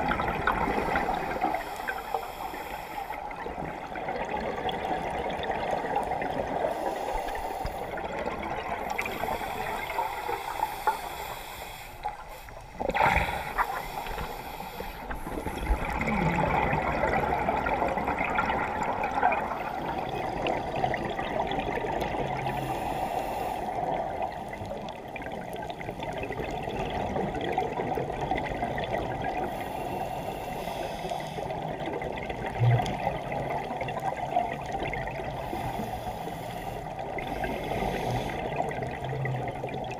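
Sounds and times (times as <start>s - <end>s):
muffled underwater bubbling: 0.0s - 39.9s
regulator breathing: 1.1s - 3.2s, 8.9s - 15.8s.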